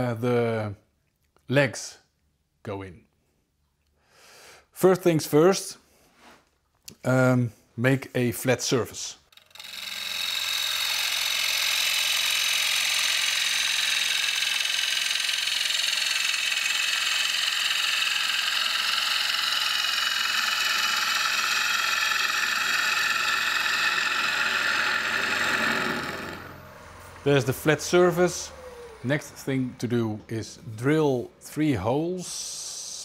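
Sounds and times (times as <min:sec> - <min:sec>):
lathe humming: 0:09.3 - 0:32.8.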